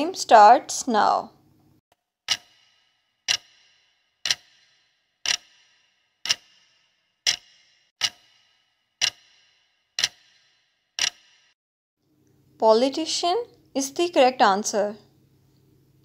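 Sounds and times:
clock ticking: 2.3 - 11.5.

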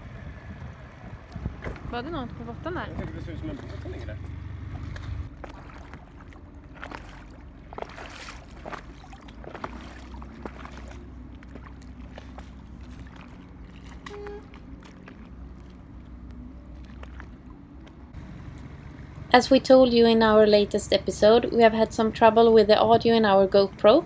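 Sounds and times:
low steady rumble: 0.0 - 24.0
water lapping against boat hull: 1.1 - 18.2
small splashes: 4.6 - 18.2.

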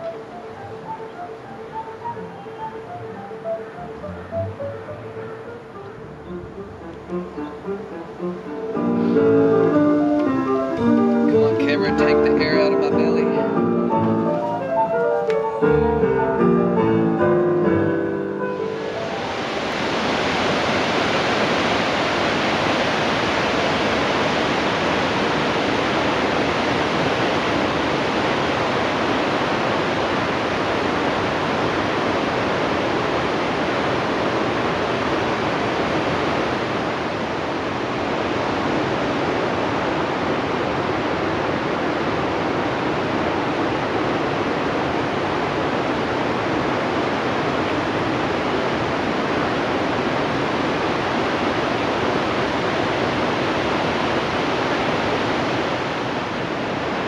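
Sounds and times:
river rushing over rocks: 0.0 - 57.0.

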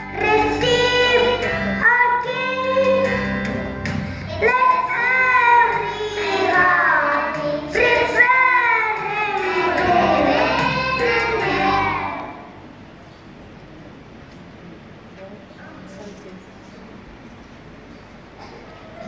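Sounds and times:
children singing: 0.0 - 3.2, 4.3 - 12.6
instrumental backing music: 0.0 - 12.4.

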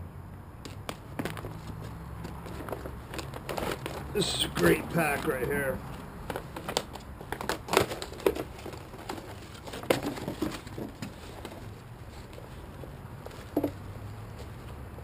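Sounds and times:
plastic packaging crinkling: 1.1 - 12.3
canvas bag rustling: 1.1 - 14.6.

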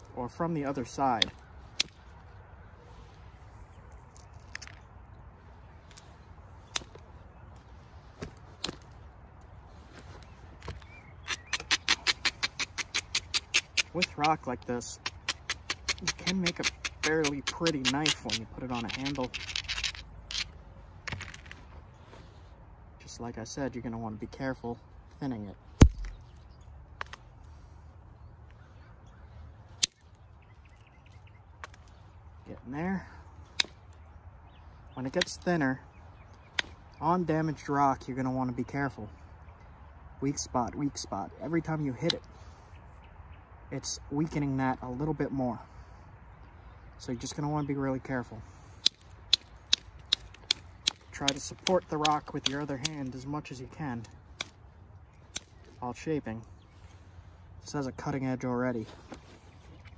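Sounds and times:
stone knapping clicks: 10.6 - 14.4, 15.0 - 20.5, 48.8 - 53.2, 54.0 - 54.6, 55.2 - 55.7.

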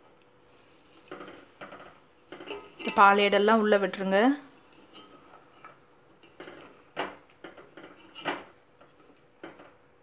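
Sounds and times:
spatula scraping a metal pot: 0.7 - 3.2, 4.6 - 9.6.

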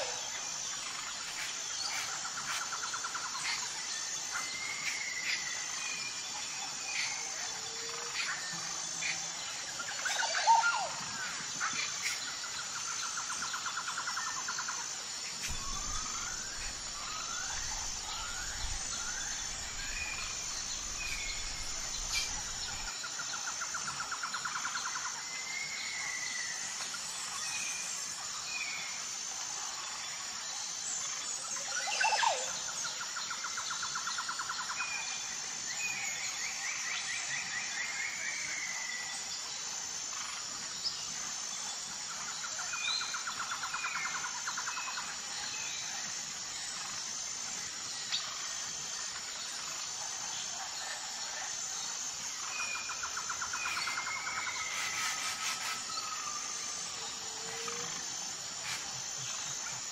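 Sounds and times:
birds calling and trilling: 0.0 - 24.8, 51.5 - 59.9
high-pitched insect drone: 0.0 - 59.9.

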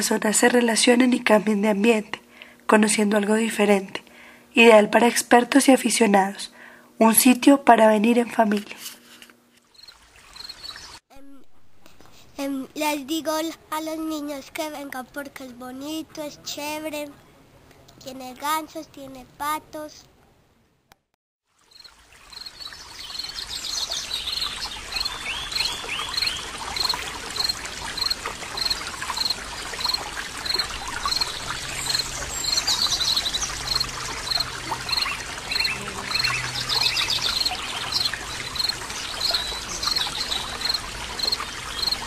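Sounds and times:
water trickling into pond: 9.6 - 11.0, 21.5 - 42.0
bird calls: 22.3 - 42.0.

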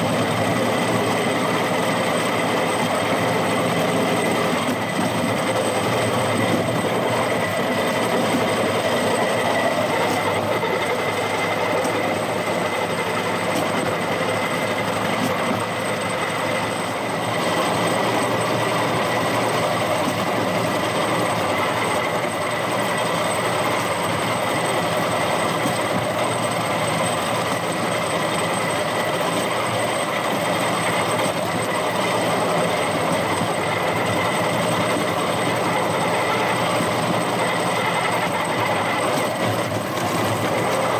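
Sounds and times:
wheels rumbling on rails: 0.0 - 40.9.

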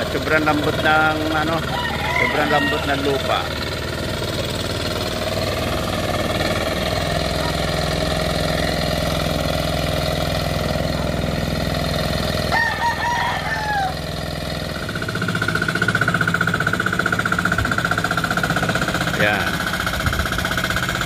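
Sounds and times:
hand tractor engine running: 0.0 - 12.8, 13.4 - 21.0
rooster crowing: 1.4 - 3.5, 8.4 - 9.4, 12.5 - 14.4.

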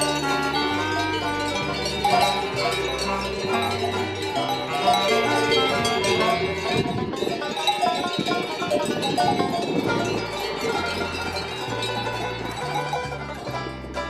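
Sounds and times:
background music: 0.0 - 14.0
cowbells clanking: 0.0 - 14.0.

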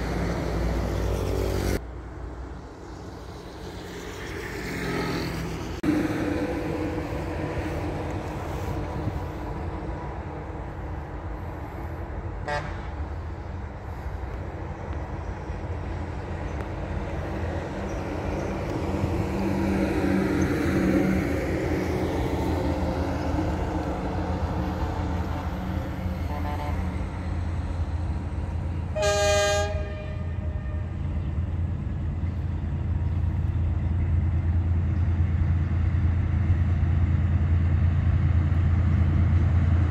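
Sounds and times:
distant road traffic rumble: 0.0 - 39.9
car horn: 12.4 - 12.9, 26.2 - 27.0, 28.9 - 30.9.

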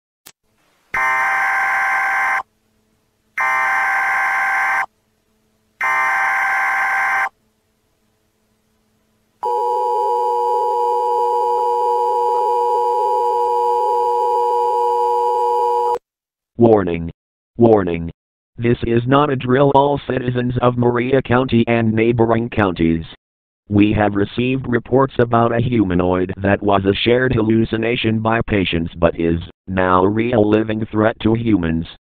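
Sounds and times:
emergency alert data bursts: 1.0 - 2.4, 3.4 - 4.9, 5.8 - 7.3.

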